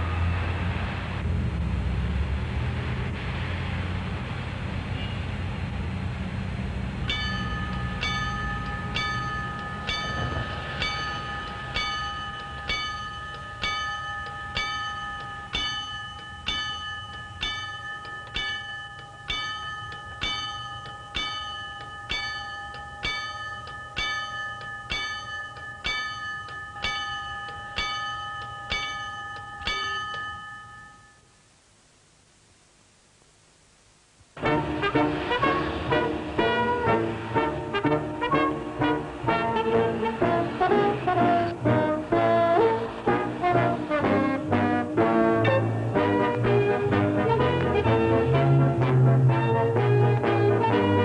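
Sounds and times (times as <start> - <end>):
bell ringing: 7.0 - 31.4.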